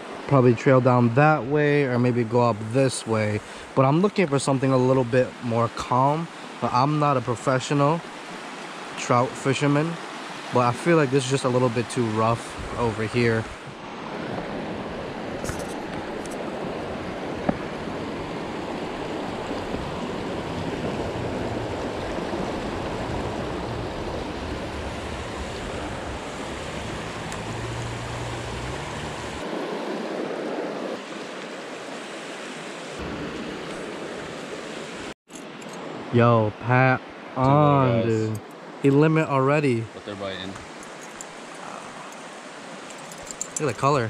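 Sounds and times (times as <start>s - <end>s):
water rushing over rocks: 0.0s - 36.3s, 37.4s - 44.0s.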